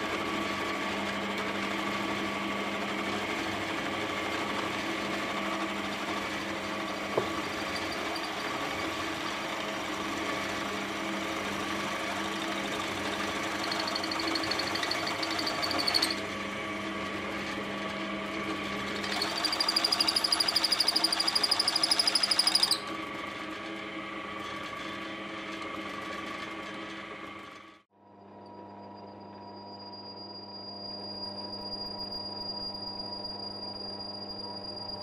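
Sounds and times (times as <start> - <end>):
drill press motor running: 0.0 - 27.8
drill bit squealing: 5.9 - 10.5, 11.8 - 16.2, 19.0 - 22.9, 29.0 - 35.0.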